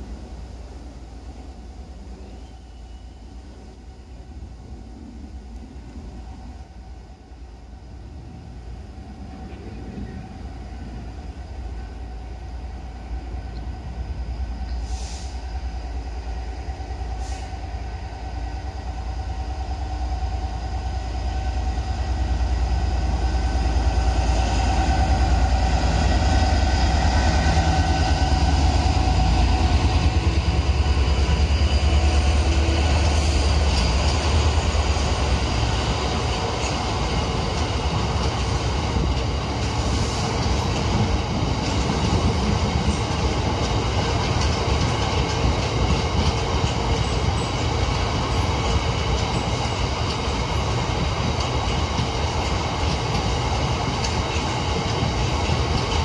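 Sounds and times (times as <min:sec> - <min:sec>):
diesel locomotive engine passing: 0:00.0 - 0:56.0
train wagons rolling past: 0:05.7 - 0:56.0.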